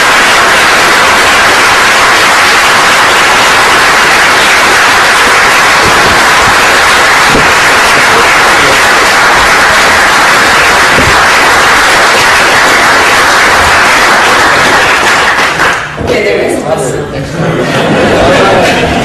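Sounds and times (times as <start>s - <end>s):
loud steady static hiss: 0.0s - 14.9s.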